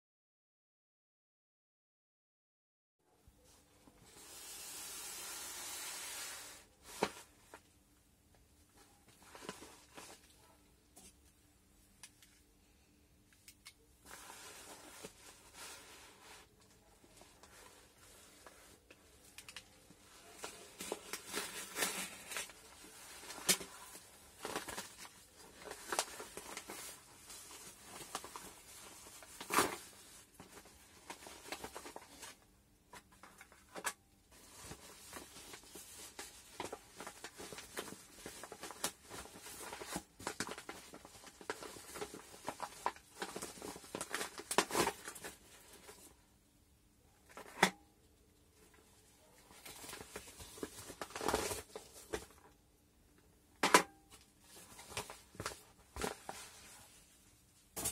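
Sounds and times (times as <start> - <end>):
plastic packs crinkling: 16.5 - 32.4, 33.2 - 46.1.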